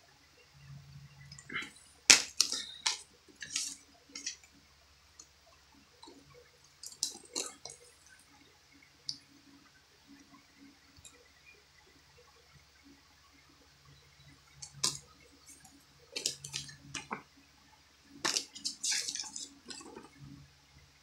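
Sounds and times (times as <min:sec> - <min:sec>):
plastic case clicking and snapping: 0:18.2 - 0:20.1.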